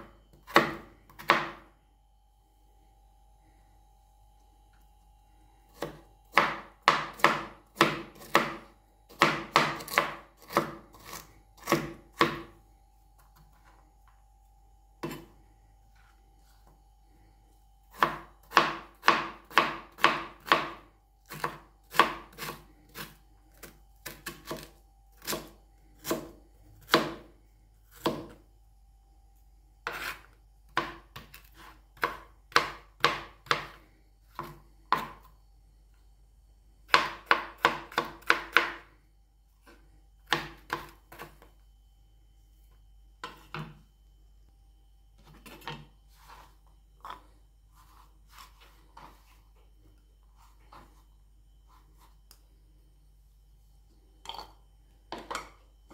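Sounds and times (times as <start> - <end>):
cleaver chopping on cutting board: 0.5 - 1.6, 5.8 - 12.5, 17.9 - 23.1, 24.1 - 27.3, 30.8 - 35.2, 36.9 - 38.8, 40.2 - 41.4.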